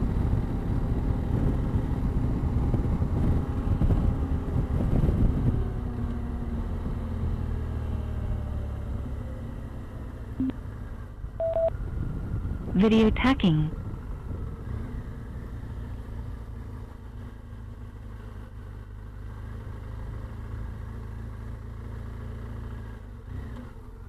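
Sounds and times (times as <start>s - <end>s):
wind rush on microphone: 0.0s - 6.0s, 11.8s - 12.8s
short beeps: 11.4s - 11.7s.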